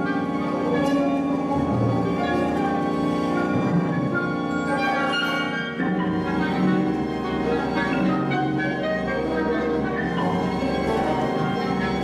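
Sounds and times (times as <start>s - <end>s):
held string chords: 0.0s - 12.0s
orchestral percussion: 0.0s - 12.0s.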